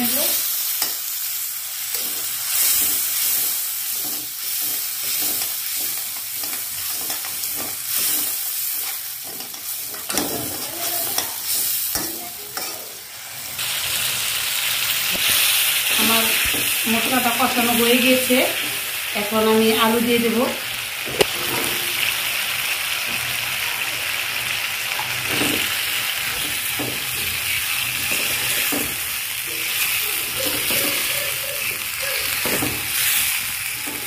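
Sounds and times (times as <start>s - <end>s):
masala sizzling and bubbling: 0.0s - 34.0s
spatula scraping metal wok: 1.9s - 12.9s, 26.3s - 34.0s.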